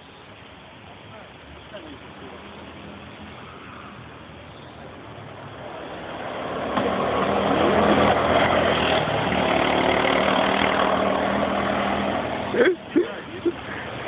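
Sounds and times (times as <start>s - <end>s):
go-kart engine passing: 4.9s - 14.0s.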